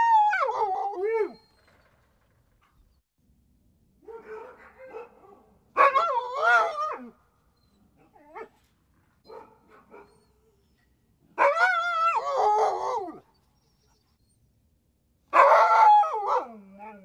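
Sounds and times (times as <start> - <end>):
husky howling: 0.0 - 1.9, 5.8 - 7.1, 11.4 - 13.3, 15.4 - 17.0.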